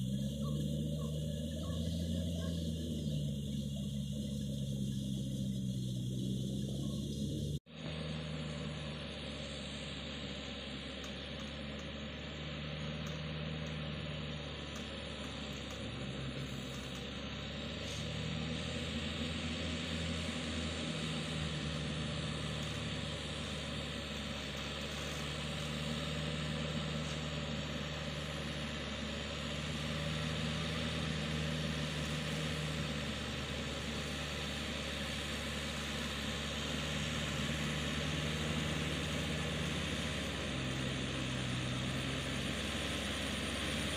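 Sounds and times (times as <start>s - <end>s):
tractor diesel engine running: 0.0s - 43.9s.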